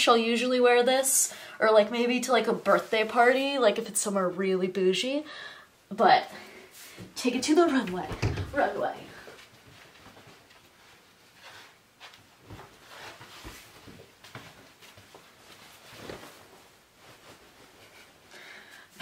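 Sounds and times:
soft footsteps on carpet: 0:06.8 - 0:18.1.

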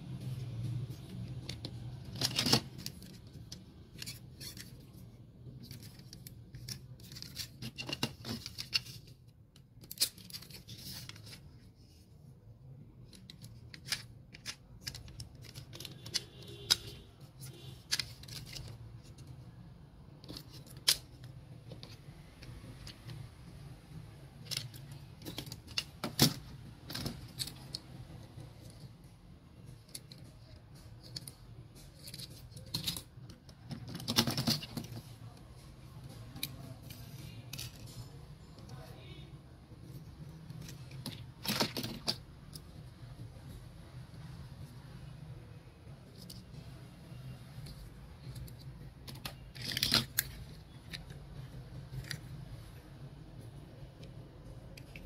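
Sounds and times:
toy trucks clattering: 0:01.2 - 0:09.2, 0:13.0 - 0:19.5, 0:29.7 - 0:35.1, 0:47.6 - 0:52.4.

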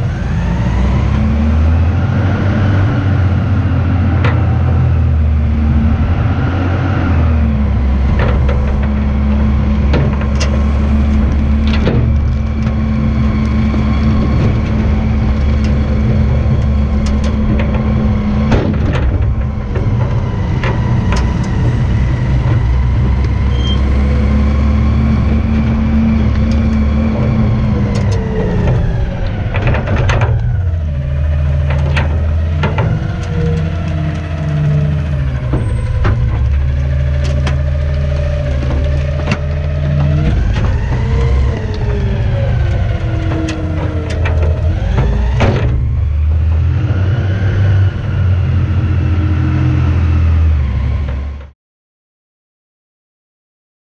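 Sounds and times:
garbage truck engine running: 0:00.0 - 0:51.5
sharp clanks and knocks: 0:03.9 - 0:06.0, 0:07.6 - 0:24.4, 0:25.1 - 0:47.8.

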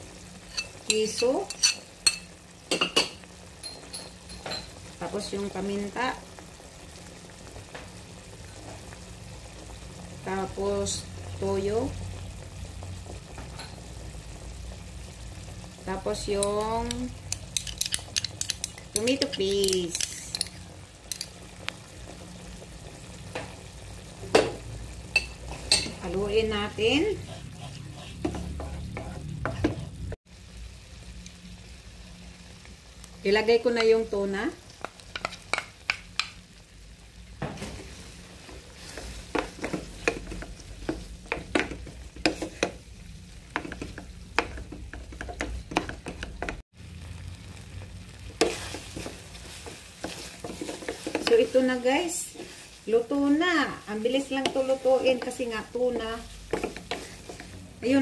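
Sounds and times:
sauce sizzling: 0:00.0 - 0:58.0
vegetables simmering in a pan: 0:00.0 - 0:58.0
spatula scraping frying pan: 0:00.4 - 0:02.2, 0:17.3 - 0:21.2, 0:26.8 - 0:30.2, 0:34.8 - 0:35.8, 0:37.7 - 0:42.8, 0:48.4 - 0:53.2, 0:54.2 - 0:58.0
metal spoon scraping a jar: 0:17.6 - 0:21.3.

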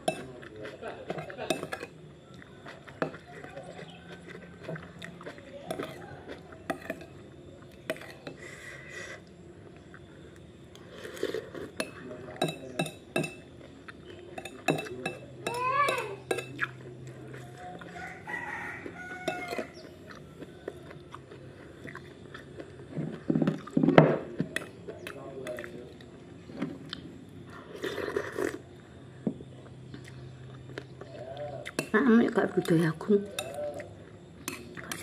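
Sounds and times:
rooster crowing: 0:17.5 - 0:21.4.

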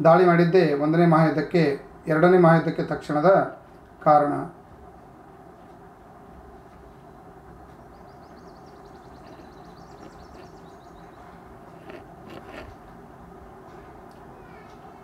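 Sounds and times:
faint high twittering: 0:07.8 - 0:12.0.

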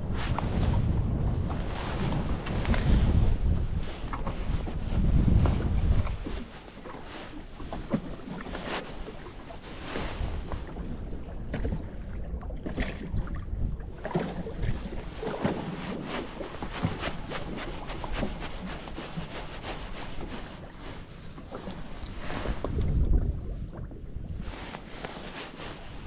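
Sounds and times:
water lapping at hull: 0:00.0 - 0:26.0
wind buffeting microphone: 0:00.0 - 0:26.0.

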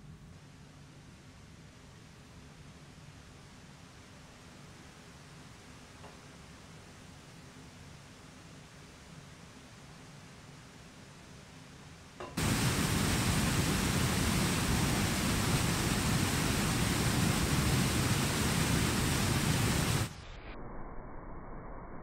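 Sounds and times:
water rushing over weir: 0:12.4 - 0:20.2.

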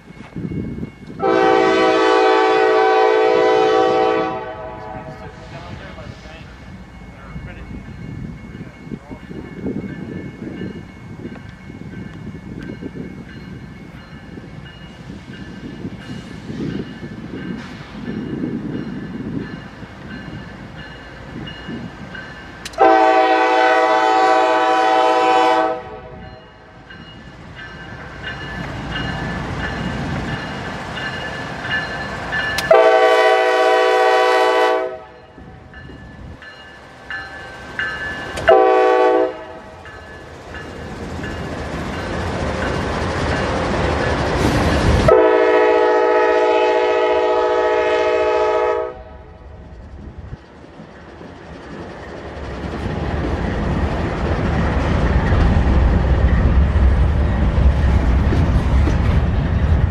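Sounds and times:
train rumble: 0:00.0 - 0:59.9
locomotive air horn blasts: 0:01.2 - 0:05.5, 0:22.8 - 0:26.2, 0:32.7 - 0:35.2, 0:38.4 - 0:39.7, 0:45.1 - 0:49.4.

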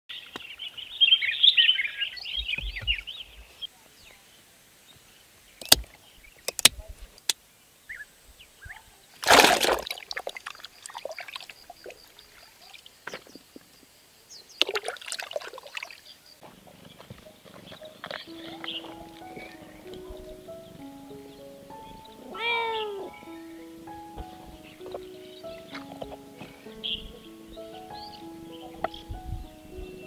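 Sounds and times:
birds twittering: 0:00.1 - 0:09.2, 0:15.8 - 0:30.0
sharp clicks: 0:05.6 - 0:07.4
loud splash: 0:09.2 - 0:11.5
water sloshing: 0:09.2 - 0:13.7, 0:14.6 - 0:16.2.

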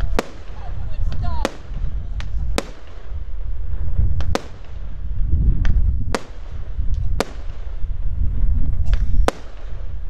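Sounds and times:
firework shells bursting: 0:00.0 - 0:10.0
low rumble: 0:00.0 - 0:10.0.

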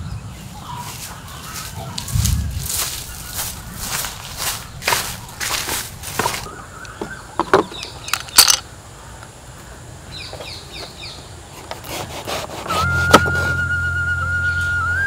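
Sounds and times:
bird chirping: 0:02.7 - 0:11.4
knife cutting thick rind: 0:11.6 - 0:13.6.

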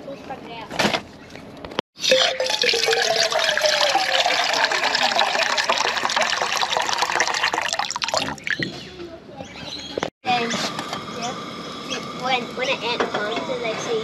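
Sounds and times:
water gushing: 0:02.0 - 0:08.7.

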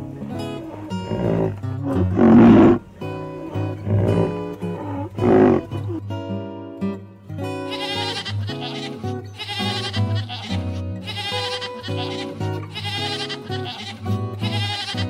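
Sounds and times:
background music: 0:00.0 - 0:06.1
goat bleating: 0:07.6 - 0:15.0.

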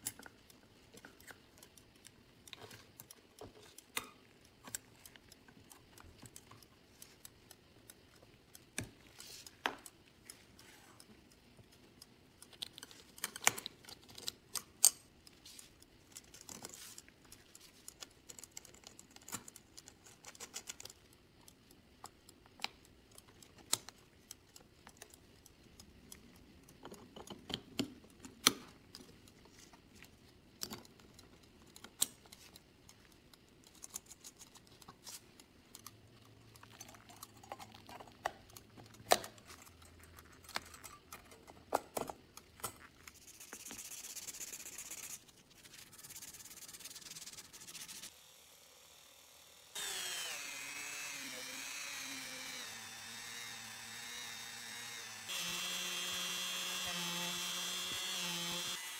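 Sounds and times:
small metal parts clicking: 0:00.0 - 0:48.1
pliers working on springs: 0:11.0 - 0:29.4, 0:49.8 - 0:58.8.

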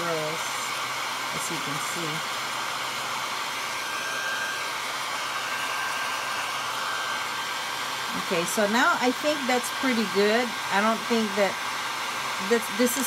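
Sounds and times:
high whine: 0:00.0 - 0:09.4
hair dryer running: 0:00.0 - 0:13.0.

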